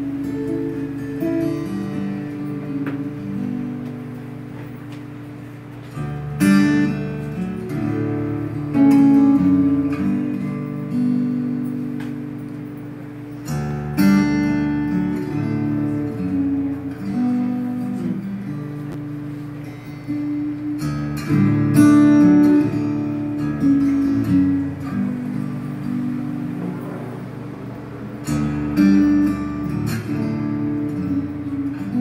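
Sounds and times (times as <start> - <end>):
acoustic guitar picking: 0.0 - 32.0.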